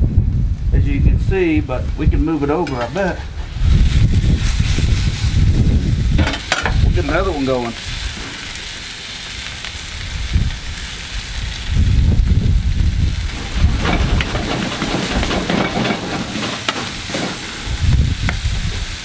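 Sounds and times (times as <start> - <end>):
low rumbling of spatula: 2.1 - 8.6, 10.2 - 18.8
meat and onions sizzling on griddle: 2.3 - 19.0.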